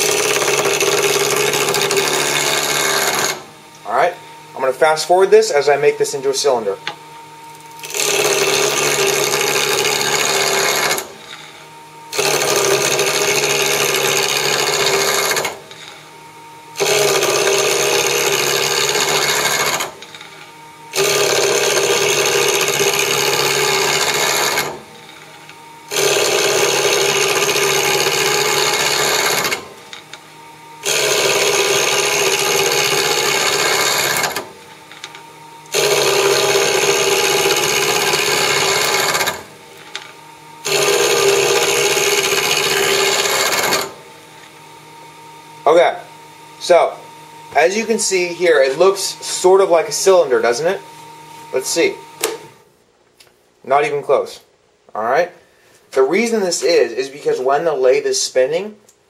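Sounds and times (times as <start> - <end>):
gouge scraping wood on a lathe: 0.0 - 3.4, 7.8 - 11.5, 12.2 - 16.0, 16.8 - 19.9, 21.0 - 29.6, 30.9 - 34.5, 35.8 - 39.4, 40.7 - 43.9
lathe running: 0.0 - 52.6.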